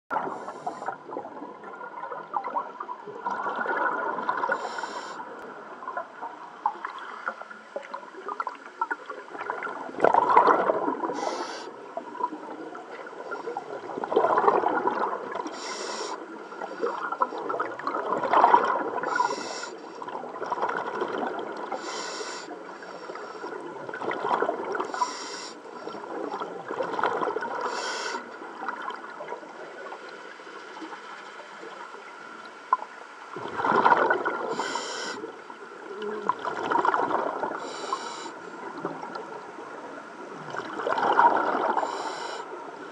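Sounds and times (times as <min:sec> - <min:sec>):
gurgling exhaled bubbles: 0:00.1 - 0:15.6, 0:16.2 - 0:21.8, 0:23.5 - 0:25.0, 0:25.8 - 0:30.1, 0:33.4 - 0:34.7, 0:35.3 - 0:37.9, 0:38.6 - 0:42.0
diver breathing through regulator: 0:00.2 - 0:01.0, 0:04.5 - 0:05.3, 0:11.1 - 0:11.8, 0:15.5 - 0:17.1, 0:19.0 - 0:20.0, 0:21.7 - 0:23.6, 0:24.9 - 0:26.1, 0:27.6 - 0:28.4, 0:34.4 - 0:35.4, 0:37.5 - 0:38.5, 0:41.8 - 0:42.6
short high hiss of air: 0:11.2 - 0:11.7.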